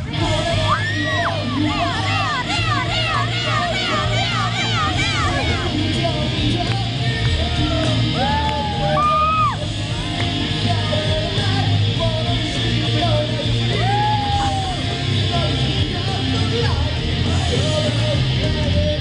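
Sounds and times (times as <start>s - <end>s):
live rock music: 0.0s - 19.0s
person yelling long notes: 0.6s - 5.8s.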